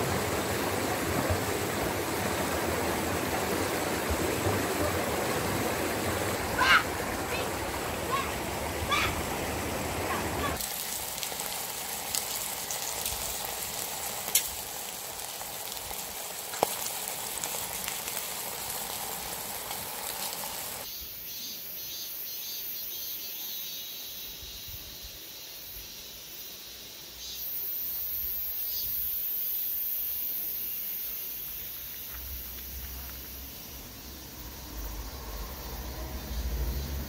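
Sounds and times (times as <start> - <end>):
steady high hiss: 0.0 - 36.8
fish sizzling on a griddle: 10.6 - 21.0.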